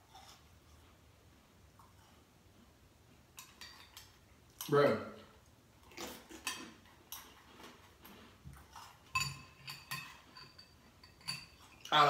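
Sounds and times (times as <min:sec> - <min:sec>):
crunchy cereal chewing: 0:05.8 - 0:09.2
spoon scraping cereal bowl: 0:06.0 - 0:12.0.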